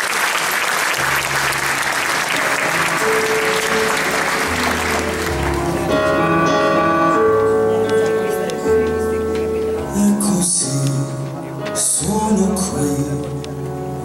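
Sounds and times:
audience applauding: 0.0 - 9.5
live band playing slow song: 0.9 - 14.0.

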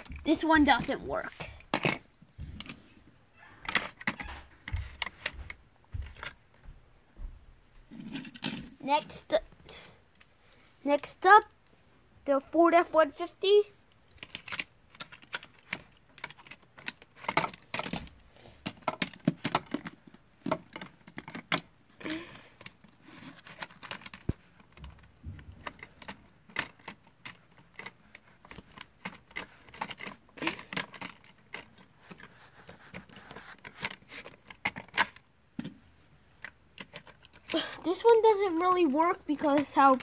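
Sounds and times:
plastic toy truck clicking on track: 25.6 - 32.2.

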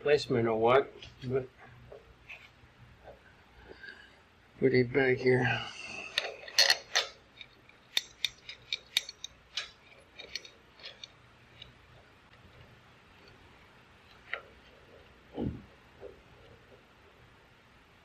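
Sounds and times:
clicks and taps on metal parts: 6.2 - 12.4.

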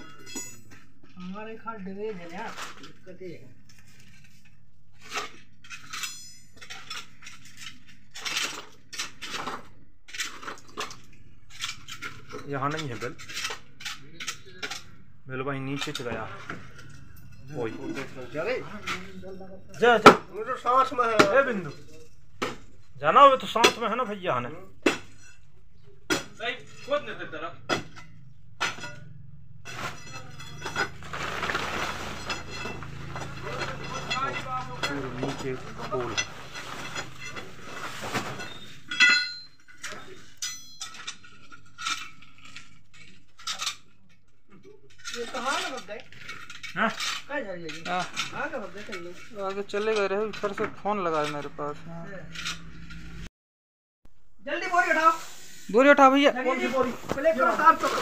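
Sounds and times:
metal rod clinking on concrete: 0.0 - 1.3, 5.6 - 9.0, 27.7 - 31.1, 32.2 - 36.3, 38.4 - 43.9.

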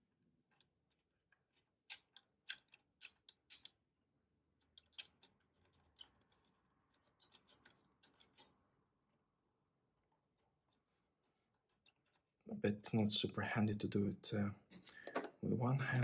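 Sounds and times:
metallic clicks of small parts: 0.2 - 8.8.

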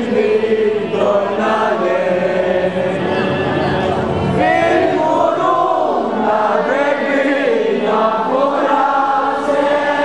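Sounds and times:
crowd singing a hymn: 0.0 - 10.0.

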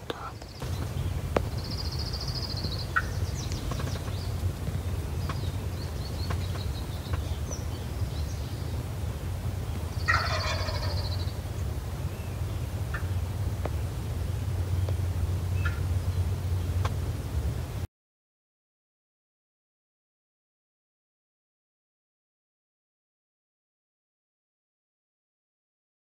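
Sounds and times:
steady low rumble: 0.0 - 17.9
turkey gobbling: 2.5 - 5.5, 10.0 - 11.6, 12.9 - 13.2, 15.6 - 15.9.

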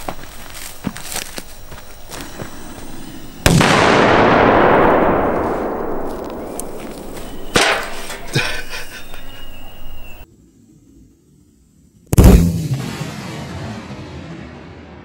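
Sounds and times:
firecracker bang: 3.4 - 8.5, 12.2 - 15.0
sharp crack: 3.4 - 8.6.

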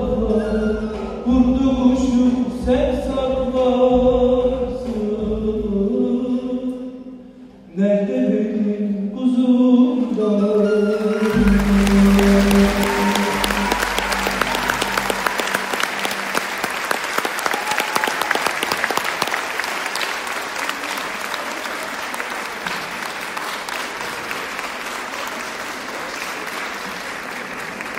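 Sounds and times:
audience applauding: 11.1 - 27.9
ensemble last note: 11.2 - 16.9.

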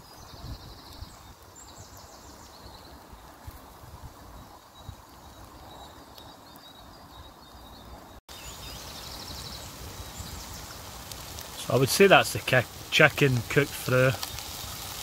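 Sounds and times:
birds chirping: 0.0 - 3.4, 4.2 - 15.0
food sizzling in a frying pan: 8.3 - 15.0.

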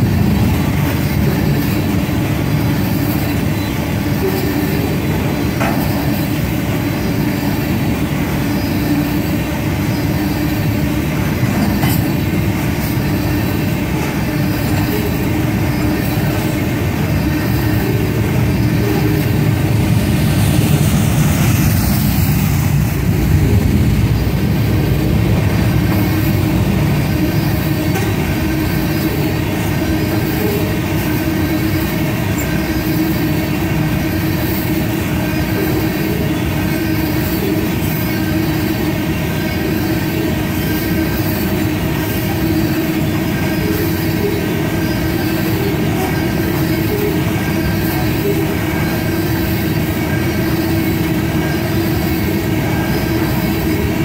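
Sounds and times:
steady tone: 0.0 - 32.8
train wheels rumbling on rails: 0.0 - 54.0.

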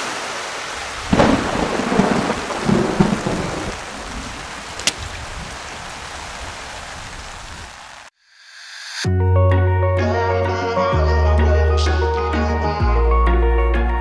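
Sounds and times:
steady rain hiss: 0.0 - 8.1
thunder rumbling: 0.9 - 7.7.

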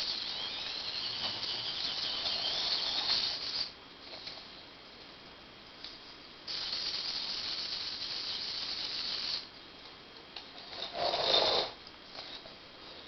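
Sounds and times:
robot motors whirring: 0.0 - 3.7.

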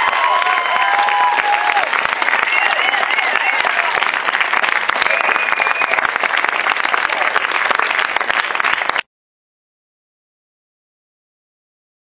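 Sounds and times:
audience cheering: 0.0 - 9.0
audience applauding: 0.0 - 9.1.

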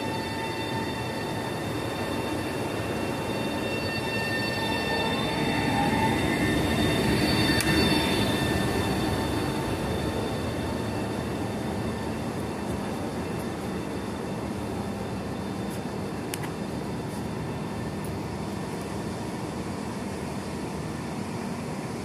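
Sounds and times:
high whining tones: 0.0 - 17.0
train wheels rumbling on rails: 0.0 - 22.0.

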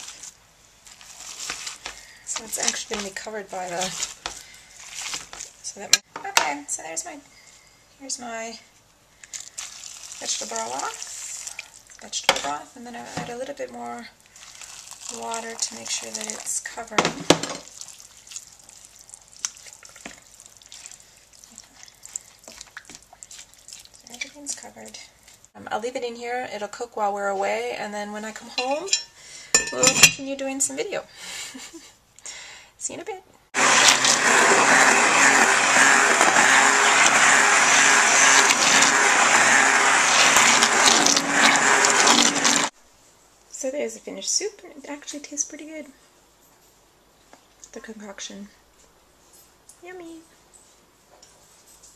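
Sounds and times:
water dripping: 17.6 - 24.6
motor running: 33.6 - 42.7.

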